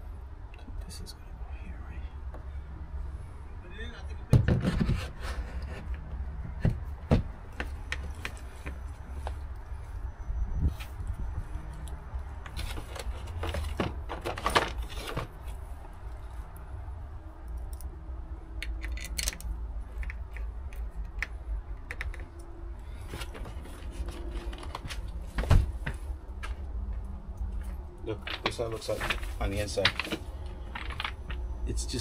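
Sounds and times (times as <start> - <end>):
steady low rumble: 15.3 - 32.0
small clicks and taps: 18.6 - 22.5.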